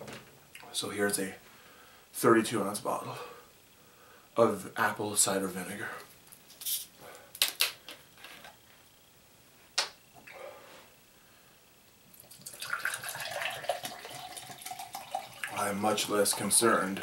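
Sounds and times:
liquid pouring into glass: 12.2s - 15.6s.

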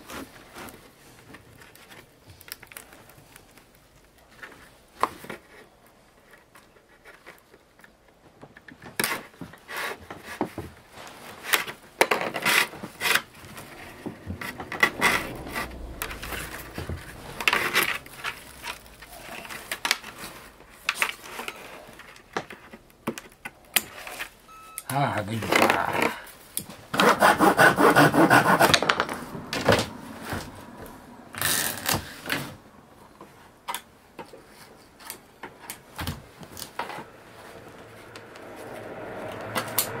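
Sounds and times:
bamboo rustling and scraping: 0.0s - 24.4s
binding strip rubbing and rasping: 27.0s - 28.8s.

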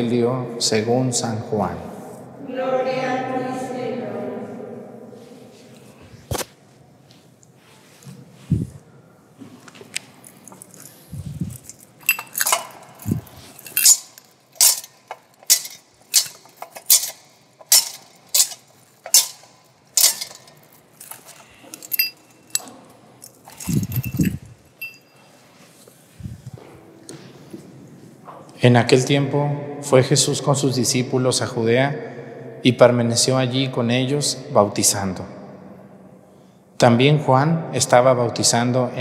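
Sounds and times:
censer chains clinking: 10.2s - 25.4s.

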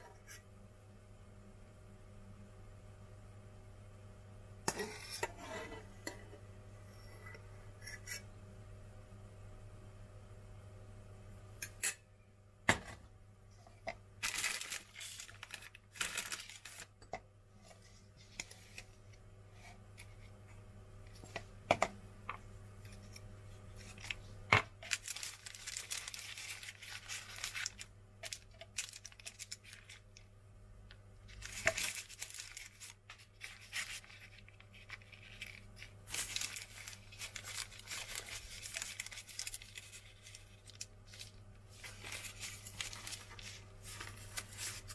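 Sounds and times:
faint steady low hum: 0.0s - 44.9s
baking paper rustling and crinkling: 14.2s - 17.0s, 22.8s - 30.3s, 31.2s - 44.9s.

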